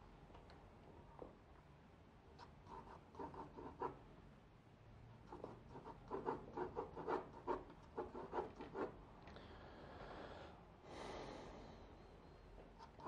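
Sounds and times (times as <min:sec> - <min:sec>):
pencil scratching on paper: 0:02.6 - 0:04.0, 0:05.3 - 0:09.0, 0:12.8 - 0:13.0.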